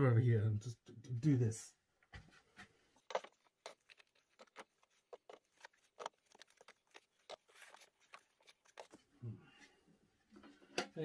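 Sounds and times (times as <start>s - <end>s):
packing material rustling: 3.0s - 9.1s.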